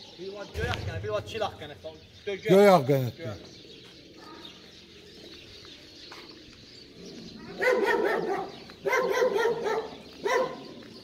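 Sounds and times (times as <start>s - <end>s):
dog barking: 7.6s - 10.7s.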